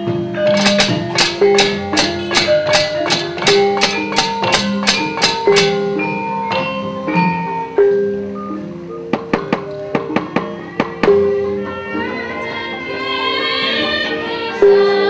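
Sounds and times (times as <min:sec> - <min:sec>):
gamelan metallophone notes: 0:00.0 - 0:15.0
sharp metal plate clacks: 0:00.4 - 0:07.5, 0:09.1 - 0:11.3.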